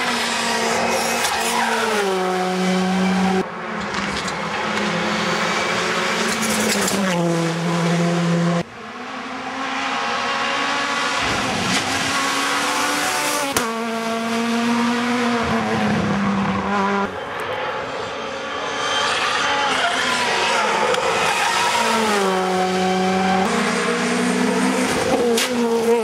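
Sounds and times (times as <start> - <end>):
rally car engines revving: 0.0 - 26.0.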